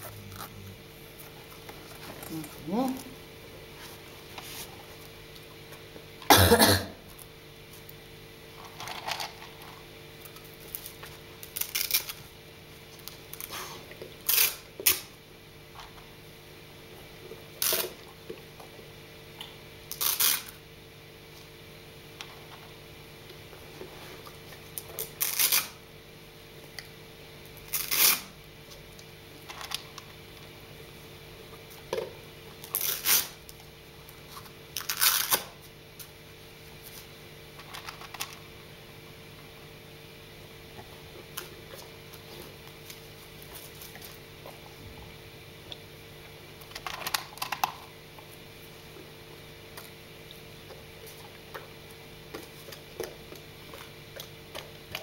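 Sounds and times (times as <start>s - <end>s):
velcro strap ripping open: 11.4s - 12.2s, 14.2s - 15.1s, 19.9s - 20.6s, 25.0s - 25.8s, 27.7s - 28.3s, 32.6s - 33.4s, 34.8s - 35.5s.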